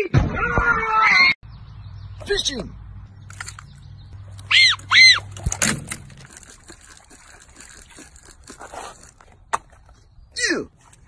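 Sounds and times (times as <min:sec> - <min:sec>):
fishing reel clicking: 0:06.2 - 0:09.1.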